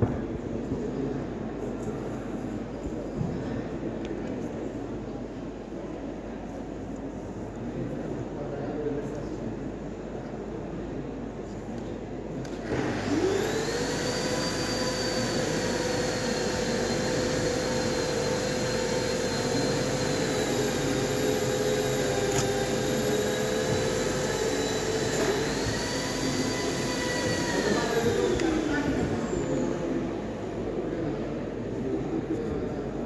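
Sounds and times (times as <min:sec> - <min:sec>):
motor whine with rushing hiss: 0:12.7 - 0:30.6.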